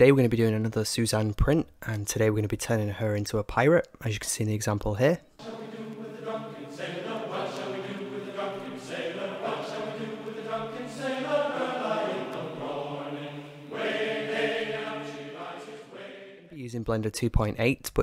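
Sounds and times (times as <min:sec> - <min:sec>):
slow held chords with choir: 0:05.4 - 0:16.6.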